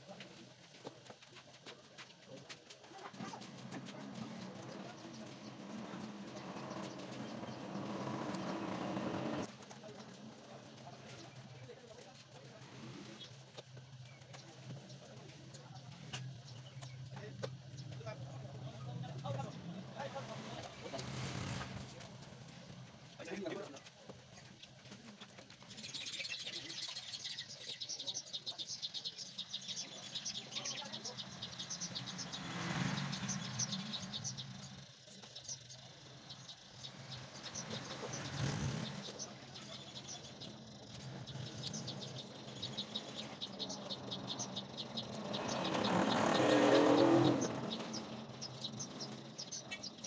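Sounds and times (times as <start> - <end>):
birds chirping: 0.0 - 50.0
vehicle passing by: 3.6 - 9.5, 19.2 - 22.6, 30.8 - 35.0, 36.6 - 49.8.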